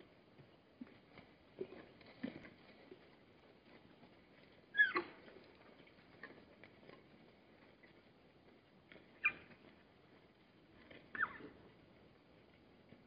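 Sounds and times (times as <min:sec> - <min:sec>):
zebra squeals: 0:04.8 - 0:05.2, 0:09.2 - 0:09.5, 0:11.1 - 0:11.6.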